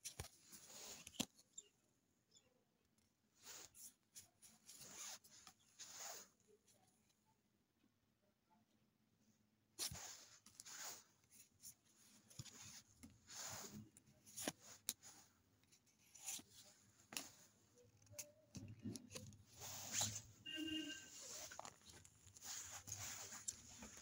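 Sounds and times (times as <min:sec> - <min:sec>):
trading cards shuffling: 0:00.0 - 0:01.4, 0:03.5 - 0:06.3, 0:09.8 - 0:24.0.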